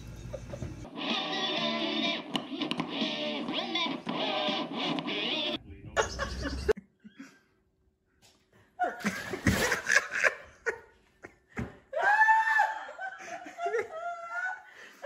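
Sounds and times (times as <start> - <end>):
person laughing: 6.0 - 7.5, 8.8 - 15.0.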